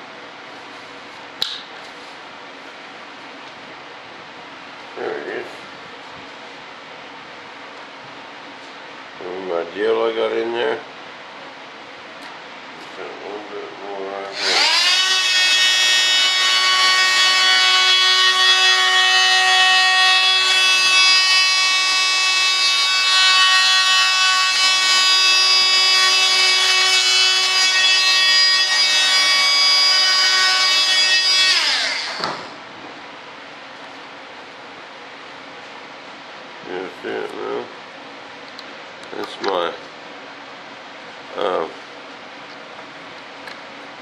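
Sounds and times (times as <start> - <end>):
electric power tool whining: 14.3 - 32.6.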